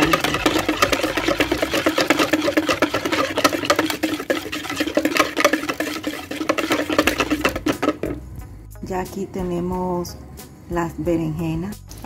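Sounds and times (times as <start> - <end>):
electric hand mixer humming: 0.0 - 8.2
beaters scraping against bowl: 0.0 - 8.3.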